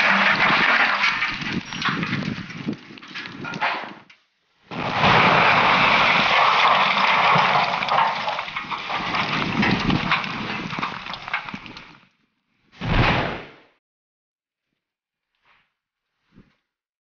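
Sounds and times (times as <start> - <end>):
loud explosion: 4.7 - 10.8, 12.8 - 13.6
rushing noise with crackles: 4.7 - 12.0.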